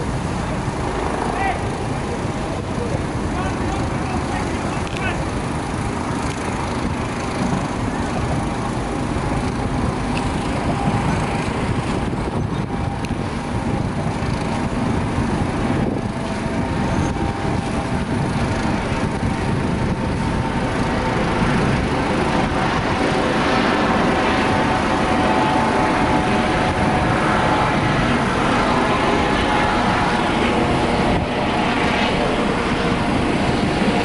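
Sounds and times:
engine drone: 0:00.0 - 0:34.0
faint whine: 0:00.0 - 0:34.0
fire hose spraying water: 0:00.0 - 0:34.0.

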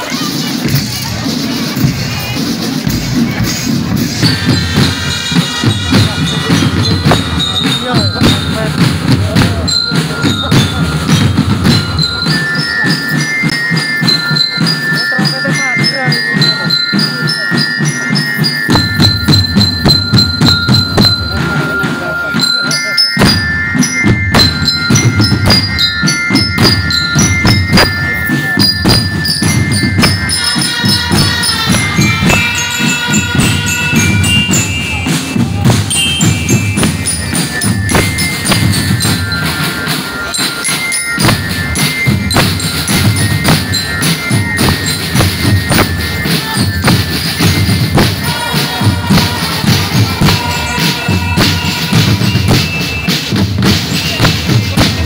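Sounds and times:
bass drums: 0:00.0 - 0:17.1, 0:18.0 - 0:21.8, 0:23.2 - 0:40.3, 0:41.1 - 0:55.0
high stepping melody: 0:00.0 - 0:55.0
snare drums: 0:00.0 - 0:55.0
low brass: 0:48.2 - 0:52.2.

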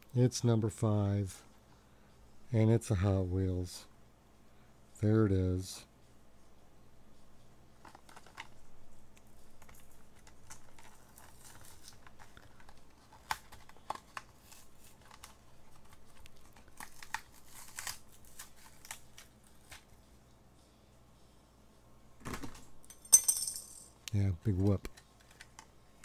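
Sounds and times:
plastic packaging crinkling: 0:09.6 - 0:19.9
sharp crackles and snaps: 0:14.9 - 0:20.0.

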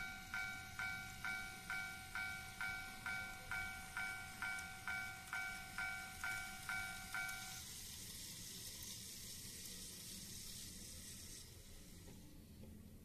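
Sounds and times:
level-crossing warning bell: 0:00.0 - 0:07.8
steady high hiss: 0:00.0 - 0:13.0.

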